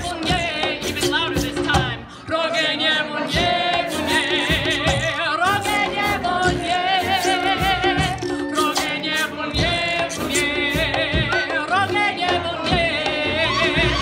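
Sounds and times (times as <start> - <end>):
woman singing: 0.0 - 14.0
live brass band playing: 3.3 - 14.0.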